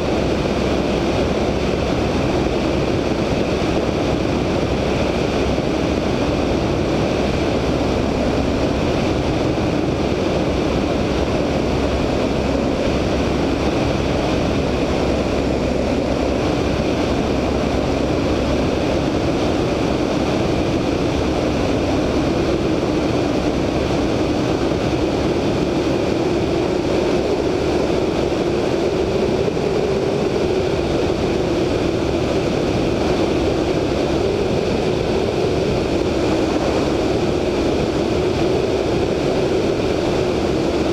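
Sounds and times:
radial aircraft engine running: 0.0 - 40.9
rush of airflow: 0.0 - 40.9.

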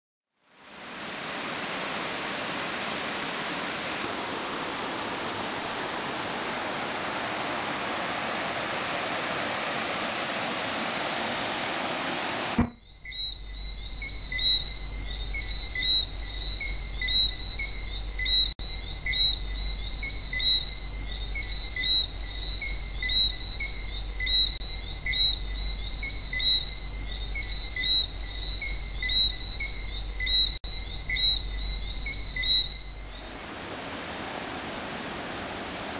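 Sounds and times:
waterfall rushing: 0.8 - 12.7, 33.3 - 35.9
high insect drone: 12.6 - 33.3.

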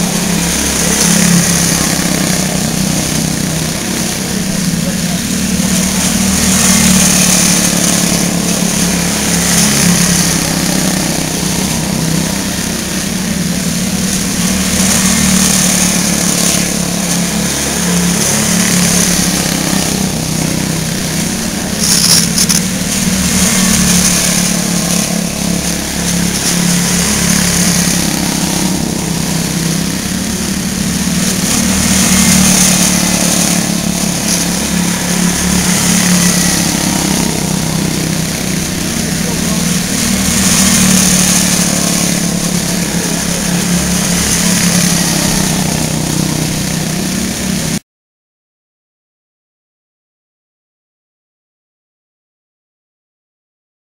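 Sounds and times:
race car engines droning: 0.0 - 47.8.

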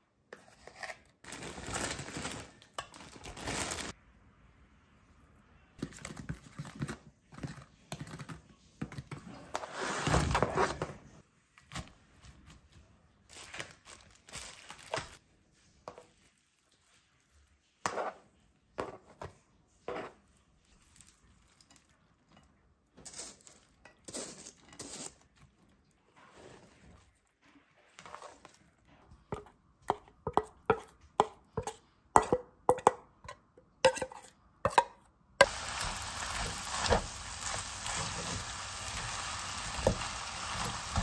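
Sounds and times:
rustling and crinkling: 0.3 - 4.0, 5.8 - 29.6.

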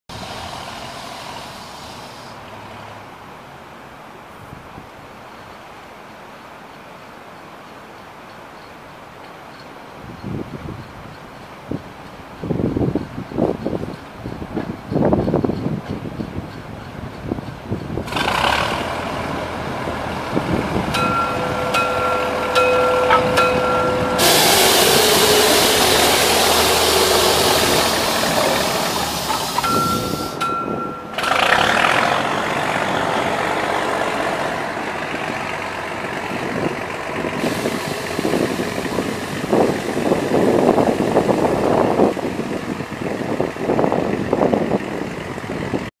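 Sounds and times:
loud hiss: 0.1 - 2.4, 21.0 - 30.6, 37.1 - 42.7
diesel locomotive passing: 0.1 - 4.0, 10.4 - 45.9
thin steady tone: 29.0 - 31.2.

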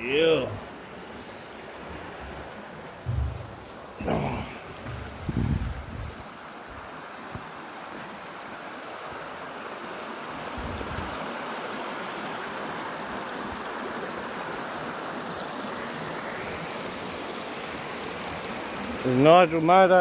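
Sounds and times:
creek water rippling over rocks: 0.0 - 20.0.

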